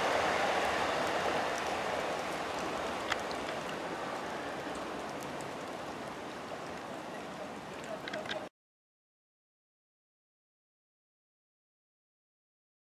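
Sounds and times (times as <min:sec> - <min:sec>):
train wheels on rails: 0:00.0 - 0:05.9.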